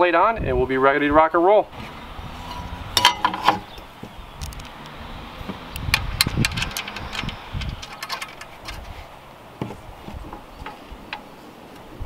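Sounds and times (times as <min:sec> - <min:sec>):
light metal clicks: 0:05.7 - 0:08.9.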